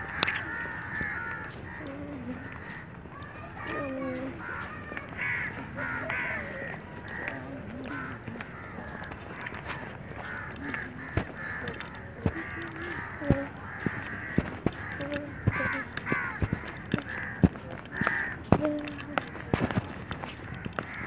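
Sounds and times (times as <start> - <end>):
crows cawing: 0.0 - 21.0
sharp clicks: 8.4 - 21.0.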